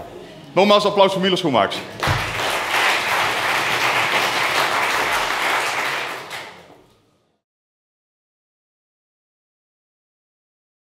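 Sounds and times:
audience applauding: 2.0s - 6.7s.

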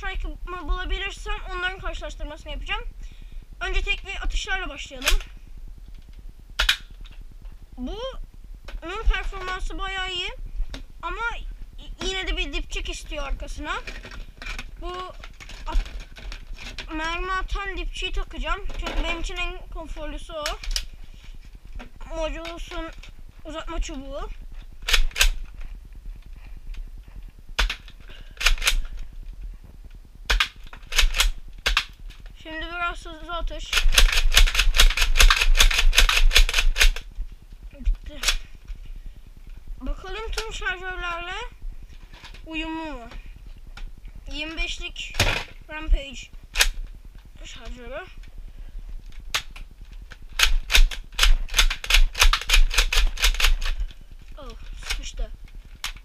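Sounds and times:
toy blaster plastic clacks: 5.0s - 5.3s, 6.6s - 7.2s, 13.8s - 16.9s, 24.8s - 25.4s, 27.6s - 28.9s, 30.3s - 32.2s, 33.7s - 37.0s, 38.2s - 38.4s, 46.5s - 46.9s, 49.3s - 53.8s, 54.7s - 55.2s
toy blaster priming click: 50.4s - 53.7s.

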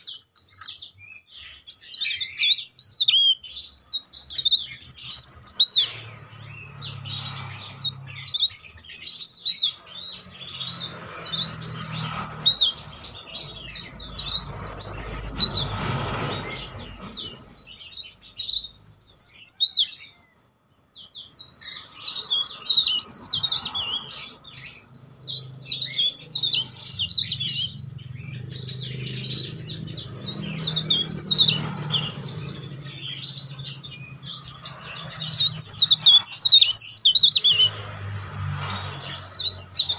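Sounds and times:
warbler twittering song: 0.0s - 39.9s.

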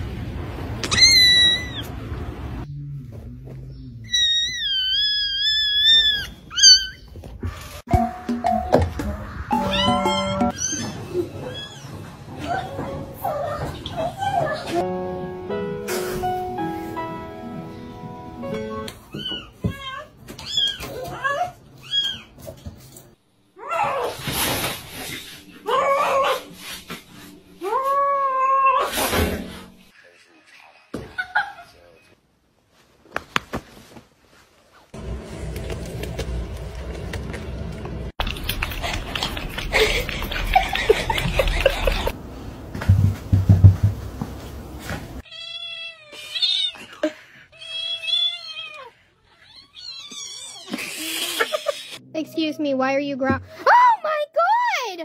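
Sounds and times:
cat yowling: 0.9s - 1.9s
knocks and scuffling: 35.4s - 45.2s.

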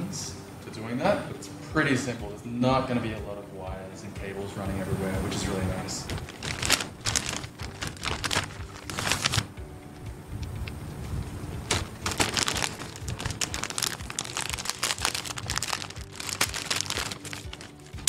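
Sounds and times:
plastic bags crinkling: 6.0s - 9.5s, 11.6s - 18.0s.

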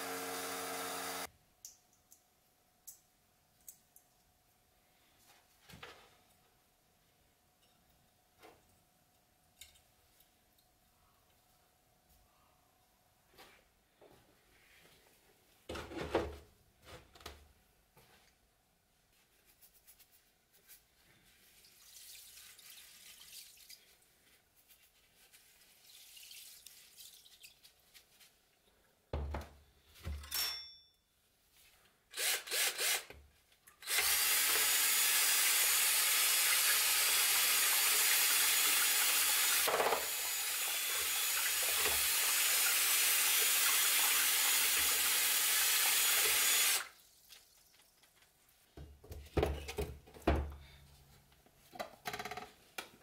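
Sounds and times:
cordless drill churning water: 0.0s - 1.3s, 32.2s - 33.1s, 33.8s - 47.0s.

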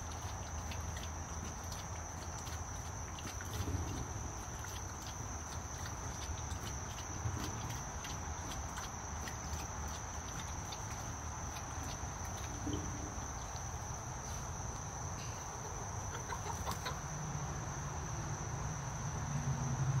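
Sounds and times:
insects buzzing: 0.0s - 20.0s
low outdoor rumble: 0.0s - 20.0s
chickens clucking: 15.2s - 17.2s.

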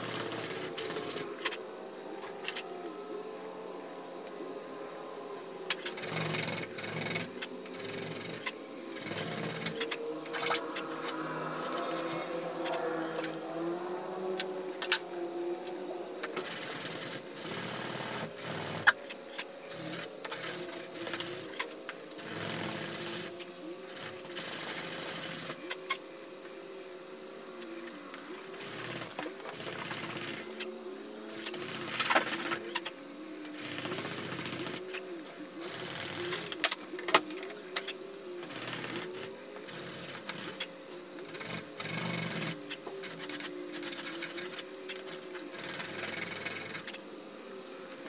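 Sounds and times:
faint steady hum: 0.0s - 48.0s
abrasive scraping: 5.7s - 16.3s.

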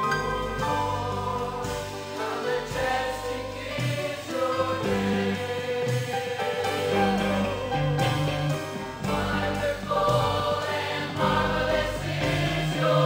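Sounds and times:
choir singing gospel: 0.0s - 13.0s
live band playing: 0.0s - 13.0s.

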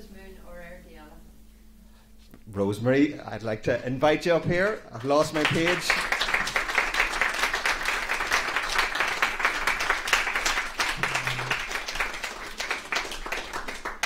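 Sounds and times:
audience applauding: 4.9s - 14.0s.

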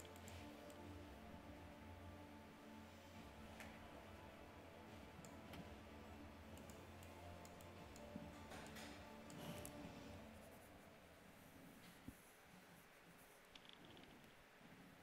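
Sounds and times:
soft clicks: 0.0s - 0.8s, 5.2s - 5.7s, 6.5s - 9.8s
faint low hum: 0.0s - 15.0s.

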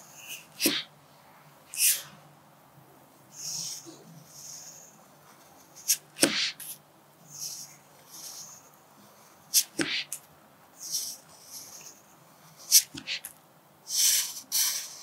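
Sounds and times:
pencil writing on paper: 0.2s - 0.9s, 3.4s - 10.2s, 10.8s - 13.3s, 13.9s - 15.0s.

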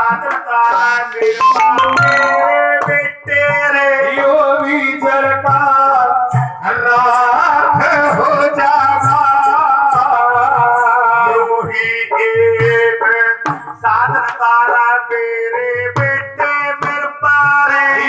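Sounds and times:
man singing through pa system: 0.0s - 18.0s
held instrument note: 1.4s - 3.4s
drum beating: 1.4s - 4.0s.

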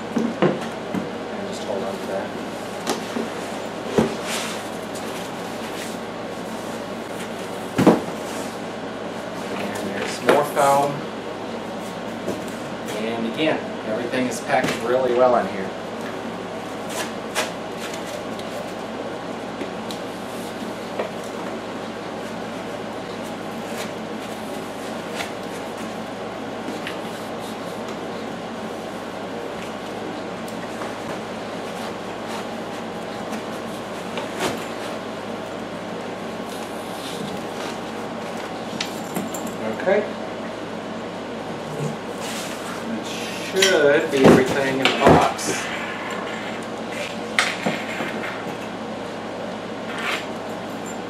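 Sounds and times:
steady background hum: 0.0s - 51.0s
foam and cardboard rustling: 2.6s - 8.6s.

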